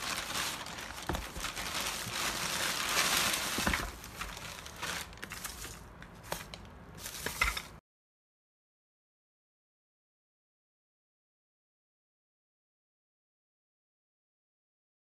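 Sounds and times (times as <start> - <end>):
plastic packaging crinkling: 0.0 - 7.8.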